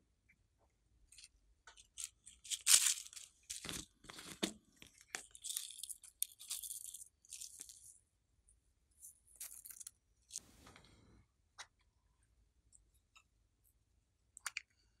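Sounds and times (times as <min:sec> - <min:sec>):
plastic jar crinkling and clicking: 0:01.1 - 0:07.9.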